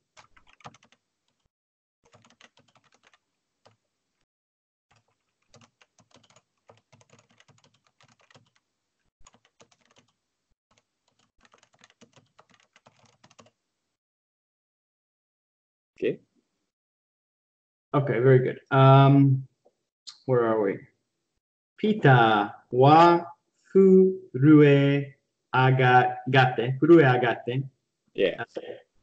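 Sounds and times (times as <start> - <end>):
faint keyboard typing: 0.0 - 3.8, 4.9 - 8.6, 9.2 - 13.6.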